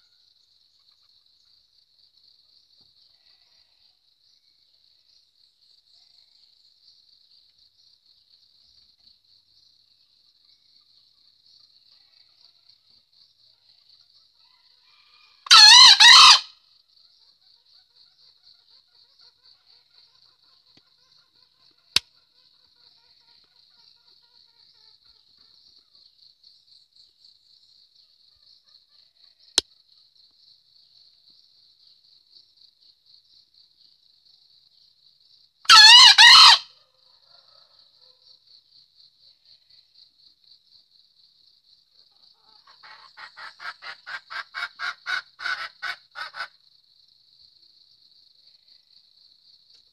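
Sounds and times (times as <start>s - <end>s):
high insect trill: 0.0s - 49.9s
rooster crowing: 14.6s - 16.6s, 35.7s - 38.3s.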